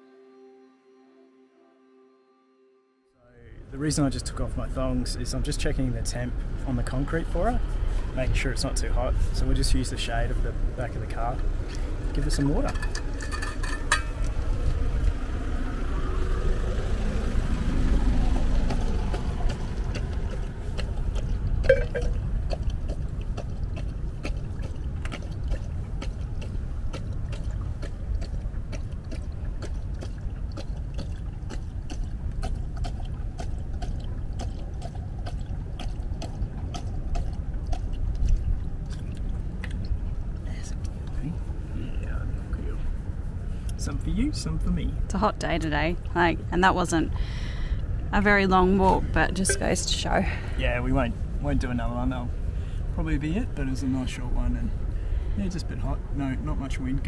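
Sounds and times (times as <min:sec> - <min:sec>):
low steady rumble: 0:03.2 - 0:57.0
dog lapping water: 0:18.0 - 0:41.7.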